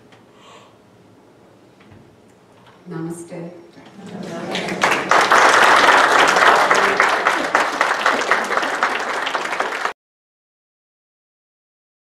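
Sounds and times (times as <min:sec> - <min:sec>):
congregation applauding: 0:04.0 - 0:10.0.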